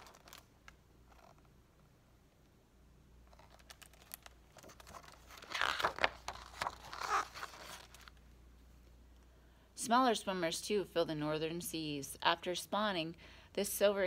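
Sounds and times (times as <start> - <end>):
book pages turning: 0.0 - 1.4, 3.3 - 8.2.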